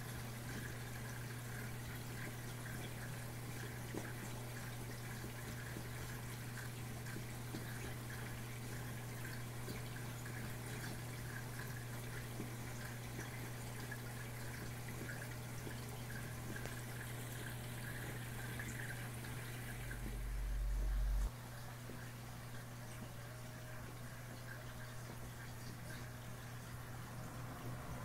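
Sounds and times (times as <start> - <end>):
water trickling and dripping: 0.0 - 28.0
steady low hum: 12.8 - 28.0.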